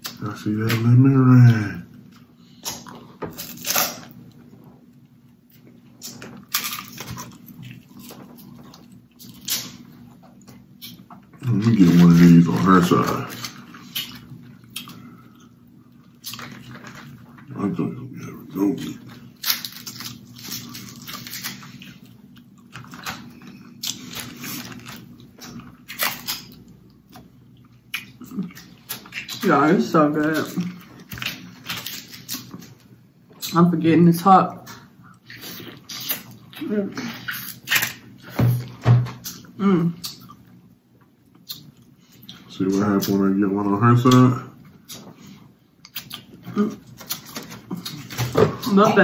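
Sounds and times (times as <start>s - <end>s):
chewing and smacking: 1.9s - 17.6s, 18.4s - 33.6s, 34.6s - 43.2s, 44.1s - 48.8s
crab shells cracking: 2.6s - 4.2s, 6.0s - 9.9s, 19.2s - 27.0s, 37.4s - 38.1s
crab shell cracking: 19.4s - 22.0s.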